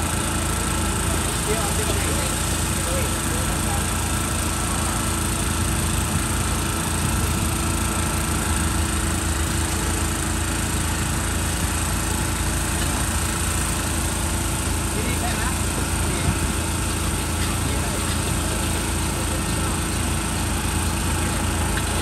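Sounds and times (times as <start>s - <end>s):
electric blower fan humming: 0.0s - 22.0s.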